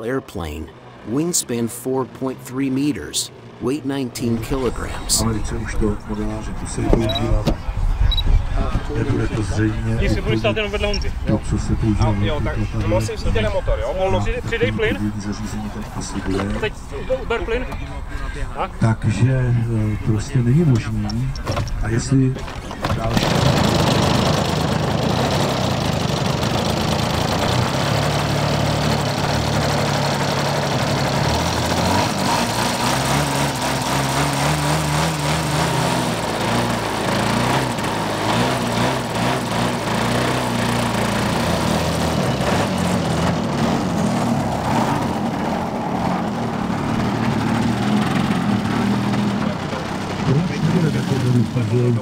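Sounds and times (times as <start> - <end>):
model plane engine running: 22.8 - 43.1.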